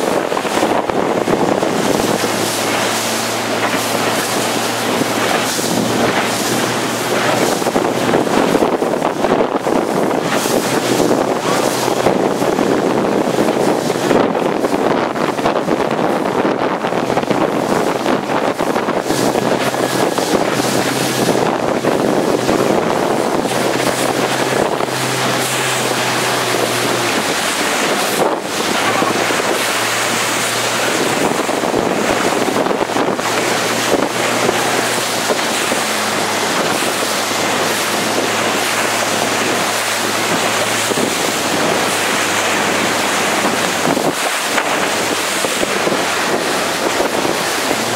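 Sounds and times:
boat engine drone: 0:00.0 - 0:47.9
water rushing and splashing: 0:00.0 - 0:47.9
wind buffeting microphone: 0:00.0 - 0:47.9.

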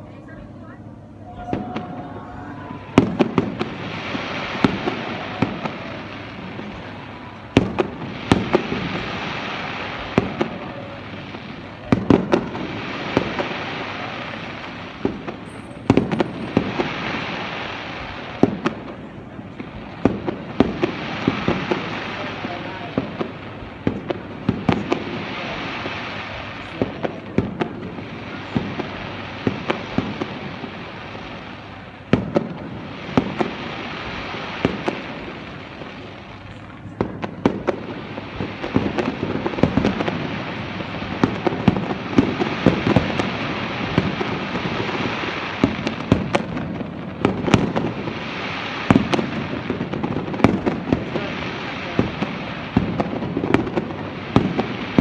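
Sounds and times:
fireworks shells bursting: 0:03.0 - 0:22.4.

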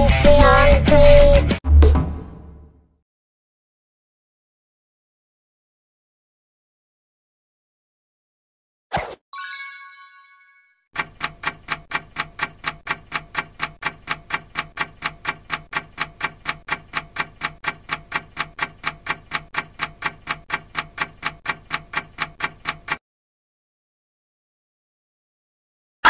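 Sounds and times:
clock ticking: 0:11.0 - 0:23.0.

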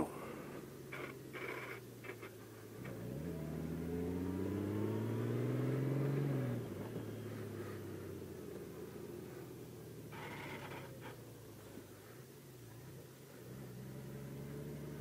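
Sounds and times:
motorcycle engine pulling away: 0:00.9 - 0:11.2, 0:13.4 - 0:15.0.

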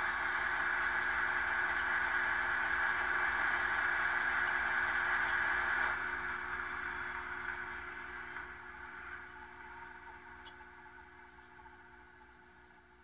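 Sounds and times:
model turbine winding down: 0:00.0 - 0:10.2.

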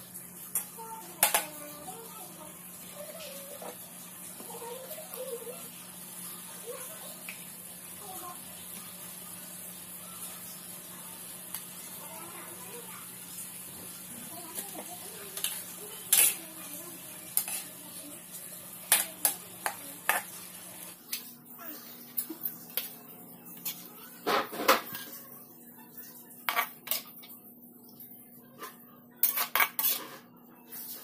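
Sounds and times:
metal spatula scraping wok: 0:16.1 - 0:16.4, 0:17.4 - 0:17.8, 0:29.2 - 0:30.3.

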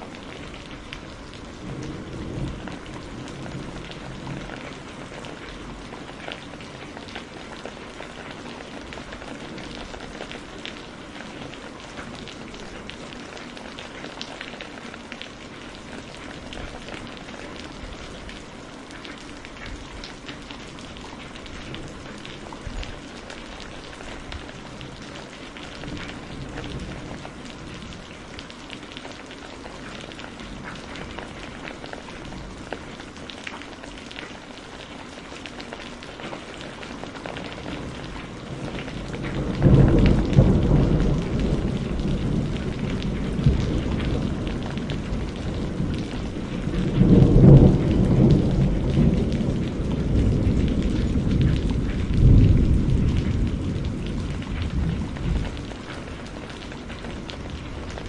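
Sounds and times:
thunder rumble: 0:00.0 - 0:06.0, 0:37.5 - 0:58.0
heavy rain: 0:00.0 - 0:58.0.

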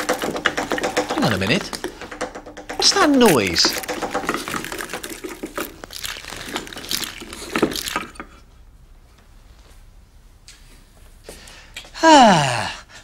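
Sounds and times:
crunching crackling clicks: 0:00.0 - 0:08.3.

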